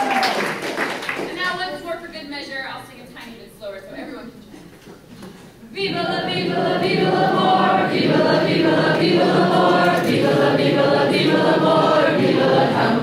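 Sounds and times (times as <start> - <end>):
voices singing through speakers: 5.6 - 13.0.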